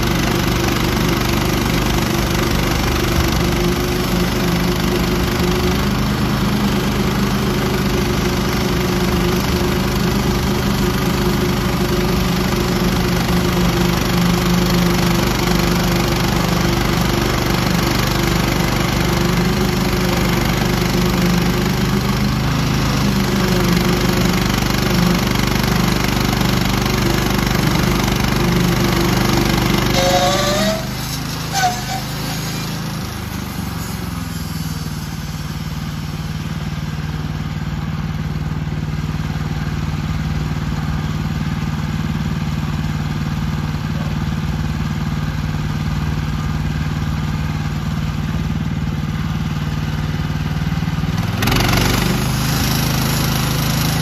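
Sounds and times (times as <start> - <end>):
sawmill engine running: 0.0 - 54.0
band blade cutting log: 27.6 - 34.6
short rising tone: 29.4 - 36.0.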